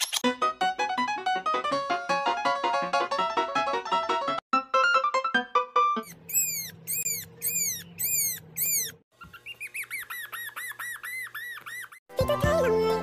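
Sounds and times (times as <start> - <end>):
puppy whimpering: 6.1 - 12.0.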